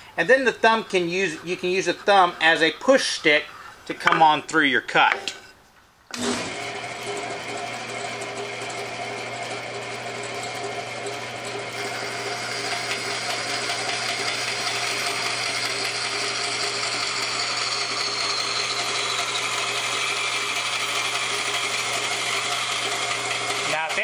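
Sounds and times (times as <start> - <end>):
band saw cutting wood: 0.2 - 4.4, 6.1 - 24.0
motor hum: 6.1 - 24.0.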